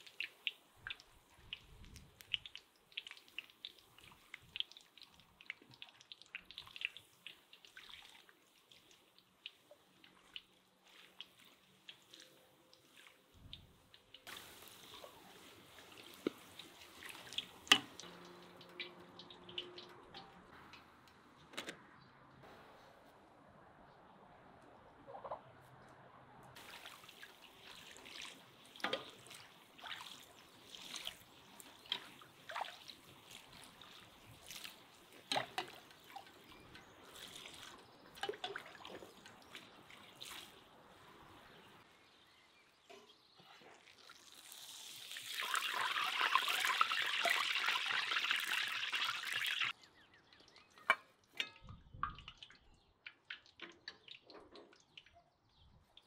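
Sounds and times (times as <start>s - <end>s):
pastry deep-frying in hot oil: 0.0s - 21.0s, 26.6s - 42.2s, 43.1s - 49.8s.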